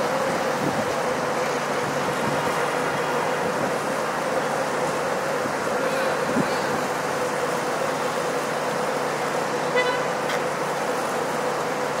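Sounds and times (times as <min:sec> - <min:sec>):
city traffic hum: 0:00.0 - 0:12.0
short high horn toot: 0:09.7 - 0:10.1.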